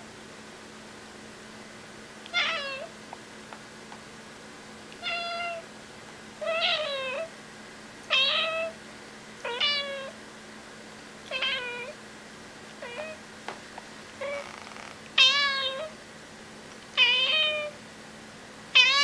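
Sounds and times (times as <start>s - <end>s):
cat meowing: 2.3s - 2.9s, 5.0s - 5.6s, 6.4s - 7.3s, 8.1s - 8.8s, 9.4s - 10.2s, 11.3s - 12.0s, 12.8s - 13.2s, 14.2s - 16.0s, 17.0s - 17.8s, 18.8s - 19.0s.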